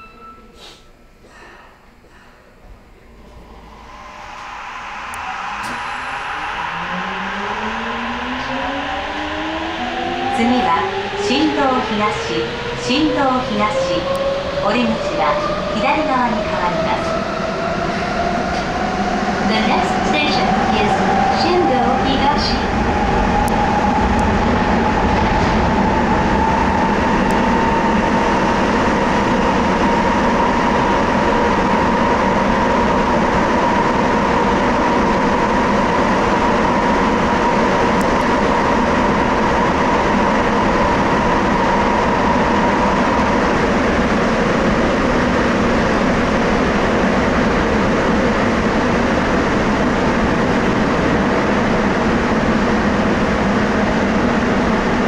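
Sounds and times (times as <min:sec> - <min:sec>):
subway train rumble: 0:00.0 - 0:55.0
high motor whine: 0:02.8 - 0:13.0.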